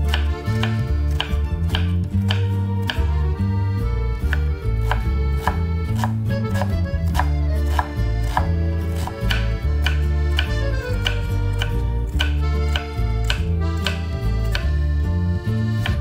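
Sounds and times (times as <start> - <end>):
knife chopping on wooden board: 0.0 - 3.1, 4.2 - 14.7
background music: 0.0 - 16.0.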